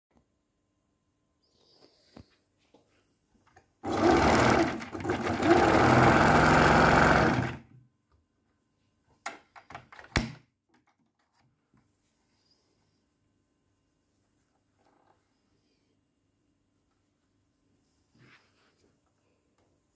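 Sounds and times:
sewing machine stitching: 3.8 - 7.6.

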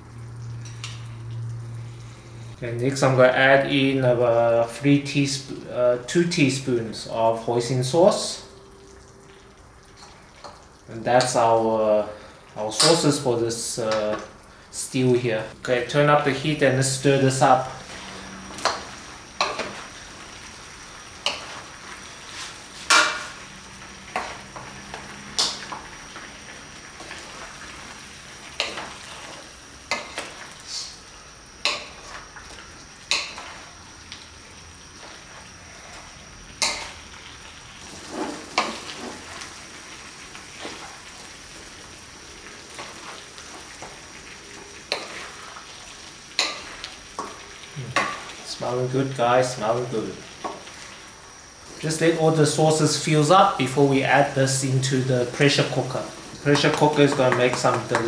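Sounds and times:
food sizzling in a wok: 0.0 - 58.0
wooden spoon scraping a pan: 21.2 - 23.4, 37.8 - 39.6, 40.5 - 41.0.

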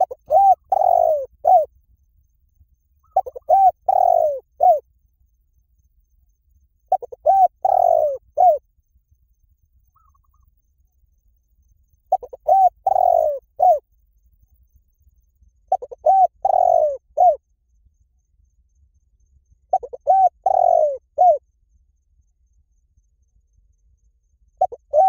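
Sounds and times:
dove cooing: 0.0 - 1.7, 3.0 - 4.8, 6.9 - 8.6, 12.1 - 13.8, 15.7 - 17.4, 19.7 - 21.4, 24.6 - 25.0.

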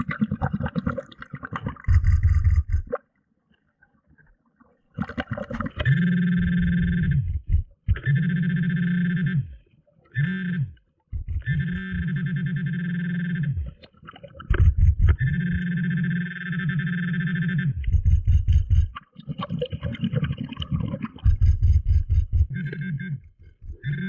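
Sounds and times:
metal detector buzzing underwater: 1.9 - 2.9, 5.7 - 9.5, 10.1 - 13.8, 14.5 - 19.0, 21.1 - 24.0.

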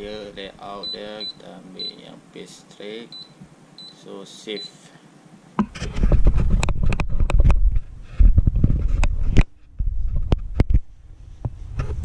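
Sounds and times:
camera handling rumble: 5.6 - 10.8
camera knocks and rubs: 5.6 - 10.8.

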